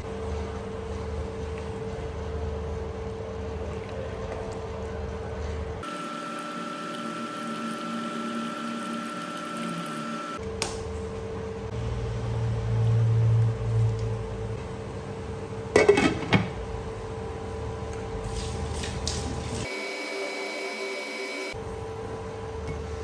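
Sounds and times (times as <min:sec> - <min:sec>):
induction cooktop humming: 0:00.0 - 0:23.0.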